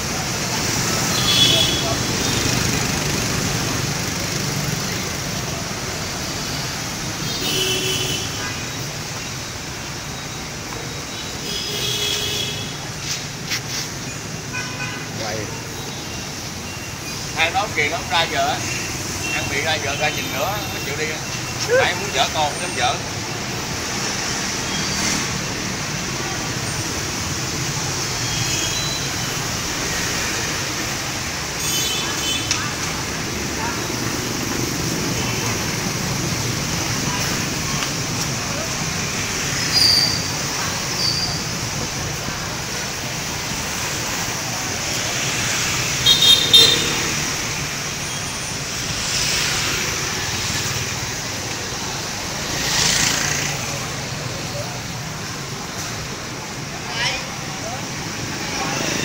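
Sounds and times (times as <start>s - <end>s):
street traffic: 0.0s - 59.0s.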